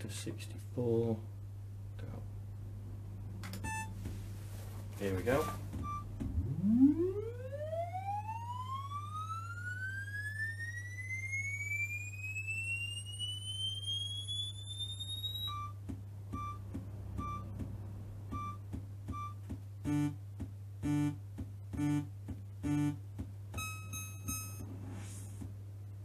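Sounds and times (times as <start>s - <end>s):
low hum: 1.2s - 20.2s
short beeps: 3.6s - 4.0s, 5.3s - 6.1s, 13.5s - 15.8s, 16.4s - 16.6s, 17.2s - 17.5s, 18.3s - 20.2s, 23.6s - 24.6s
test tone gliding upward: 5.8s - 15.7s.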